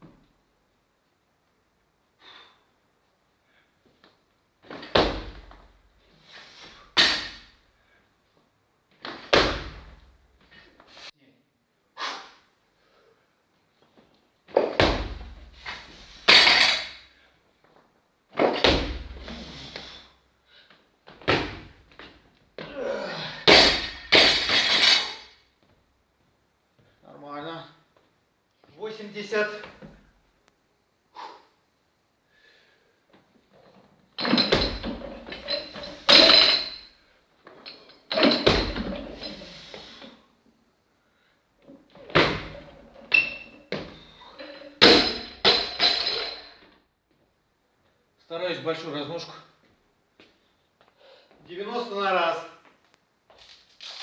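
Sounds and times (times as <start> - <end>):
barbell thuds and clanks: 7.0 - 7.5, 16.3 - 17.0, 18.4 - 19.3, 23.4 - 25.2, 34.2 - 36.9, 38.1 - 39.5, 42.0 - 44.1, 44.7 - 46.6
barbell plates clanking: 34.2 - 36.9.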